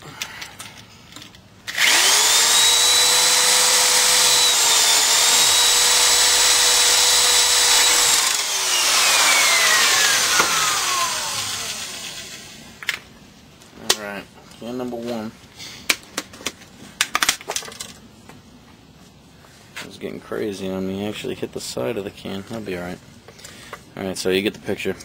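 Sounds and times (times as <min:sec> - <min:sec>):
electric drill whining: 0:01.7 - 0:12.8.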